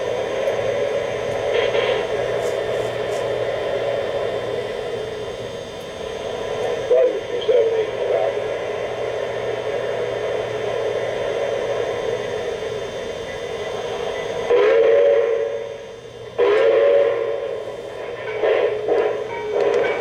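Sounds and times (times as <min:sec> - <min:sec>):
model train running sound: 0:00.0 - 0:20.0
train whistle blasts: 0:14.4 - 0:17.6.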